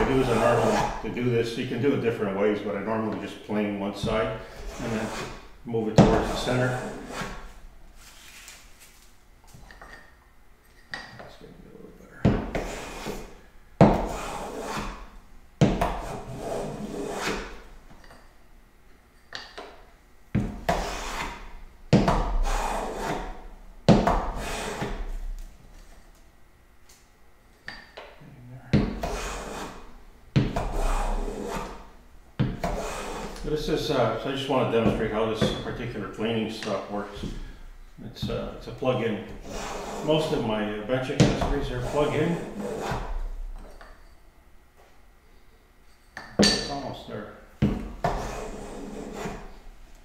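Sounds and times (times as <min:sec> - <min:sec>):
hand plane swishing on wood: 0:00.0 - 0:01.0, 0:04.6 - 0:05.4, 0:06.0 - 0:07.4, 0:12.6 - 0:13.3, 0:14.0 - 0:15.0, 0:15.9 - 0:17.6, 0:20.7 - 0:21.4, 0:22.3 - 0:23.3, 0:24.3 - 0:25.0, 0:29.0 - 0:29.9, 0:30.6 - 0:31.8, 0:32.6 - 0:33.5, 0:39.4 - 0:40.4, 0:41.3 - 0:43.2, 0:48.0 - 0:49.5.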